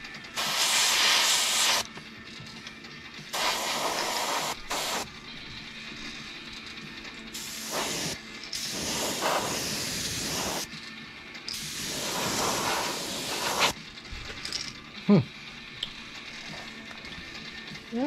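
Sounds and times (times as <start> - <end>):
airbrush spraying hiss: 0.4 - 1.9, 3.3 - 5.1, 7.4 - 10.7, 11.5 - 13.8.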